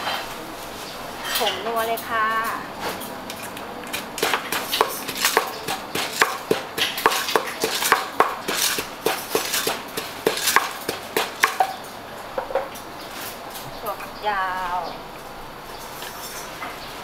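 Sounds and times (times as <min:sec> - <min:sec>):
pestle pounding in a mortar: 0:03.8 - 0:11.8.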